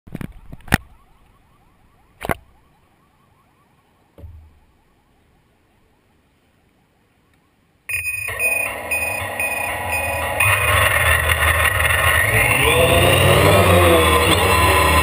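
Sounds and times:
low thump: 4.2s - 4.6s
drone motors whirring: 7.9s - 15.0s.

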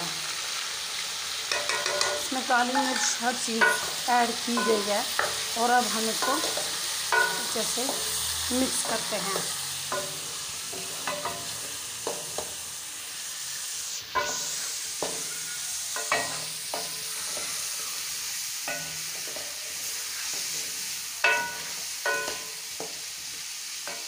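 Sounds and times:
chicken sizzling in a pot: 0.0s - 24.0s
spatula knocking metal pot: 3.6s - 5.4s, 6.1s - 7.6s, 21.3s - 22.5s.

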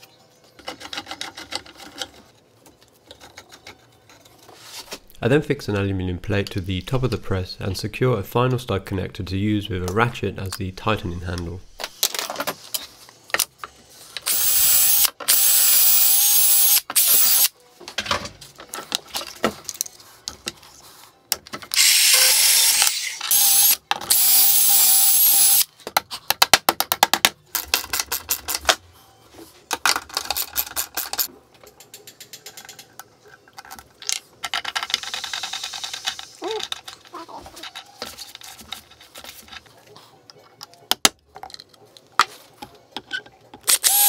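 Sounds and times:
cordless drill whining: 14.3s - 17.5s, 21.8s - 25.7s, 43.7s - 44.0s.

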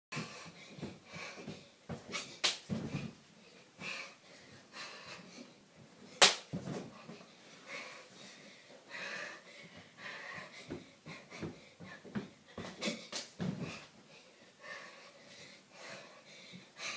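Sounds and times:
heavy breathing: 0.1s - 6.2s, 6.8s - 16.9s
bed bouncing: 0.2s - 3.2s, 10.6s - 13.9s.

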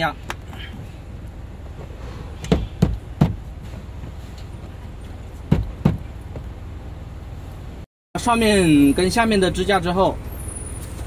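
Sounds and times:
fist thumping bracket on trim: 2.4s - 3.4s.

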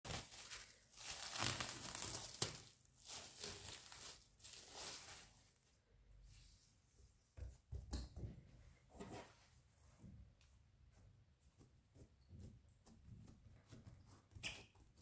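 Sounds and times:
cling film crinkling: 0.0s - 5.4s.

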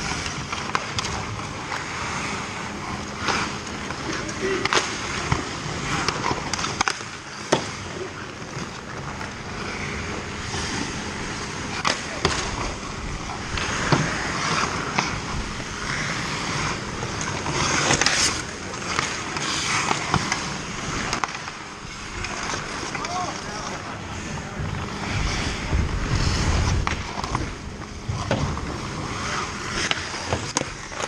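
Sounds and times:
skates scraping on ice: 0.0s - 31.0s
sticks clacking on puck: 3.2s - 7.9s, 11.7s - 12.7s, 15.9s - 21.6s, 29.1s - 31.0s.

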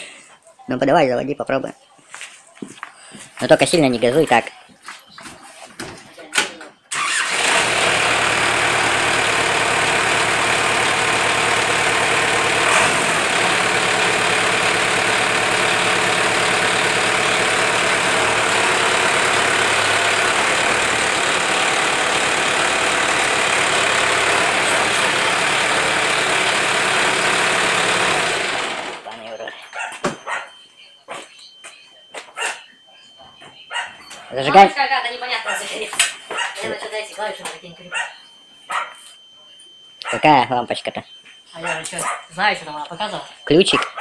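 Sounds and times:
diesel tractor engine idling: 6.9s - 29.4s.

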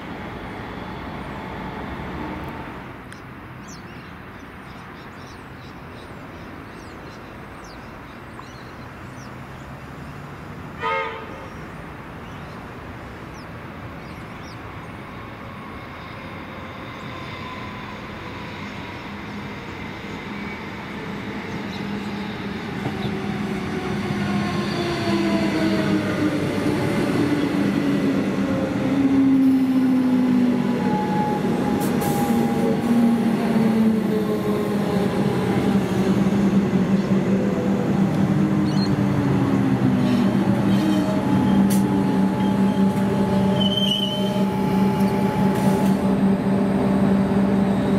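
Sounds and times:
train horn toot: 10.8s - 11.5s, 30.8s - 32.9s, 40.0s - 46.2s
train motor whine: 40.6s - 47.9s.

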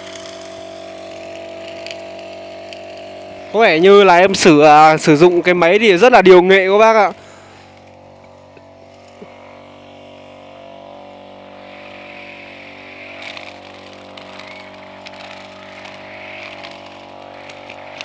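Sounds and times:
brush cutter engine running: 0.0s - 18.0s
cutting head swishing through grass: 12.9s - 18.0s.

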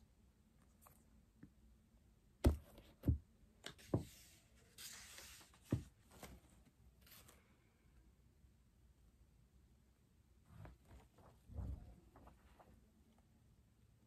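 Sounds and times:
book thumping on desk: 2.4s - 3.2s.

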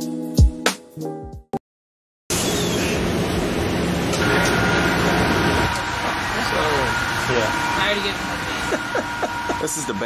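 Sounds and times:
loud rushing machinery noise: 2.3s - 10.0s.

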